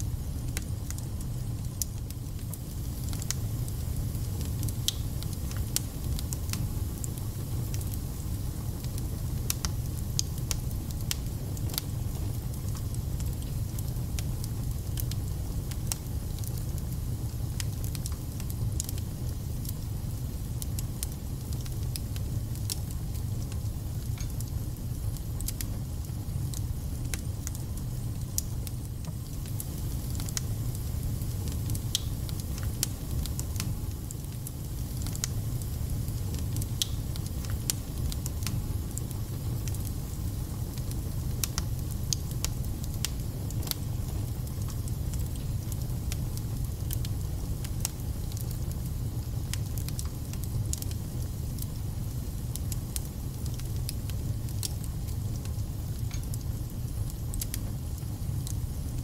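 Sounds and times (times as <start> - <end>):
wood fire crackling: 0.0 - 59.0.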